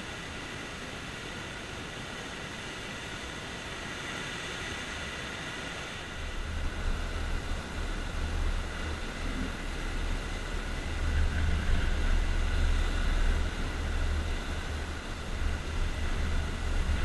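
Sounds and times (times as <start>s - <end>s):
waves washing onto stony beach: 0.0s - 17.0s
low uneven rumble: 5.7s - 17.0s.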